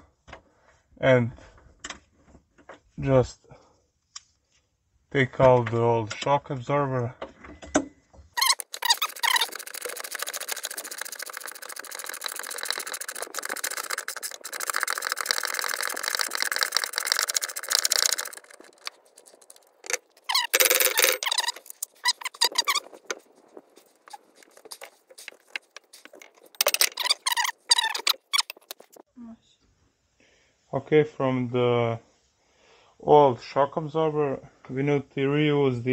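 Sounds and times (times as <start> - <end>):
metal scrapes and squeaks: 8.4 - 29.0.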